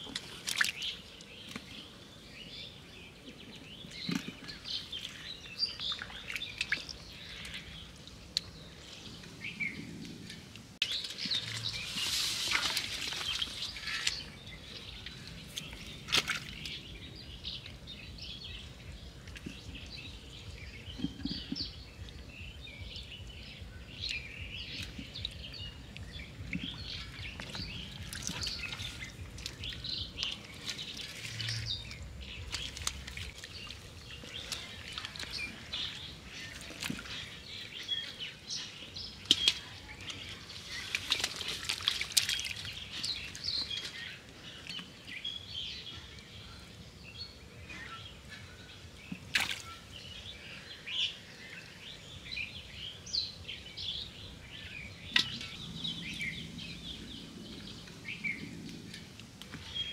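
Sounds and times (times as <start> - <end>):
hands splashing in muddy water: 0.0 - 1.7, 3.9 - 7.7, 10.8 - 14.4, 15.0 - 16.9, 24.6 - 38.1, 39.1 - 44.1, 49.2 - 49.8
birds chirping: 0.0 - 59.9.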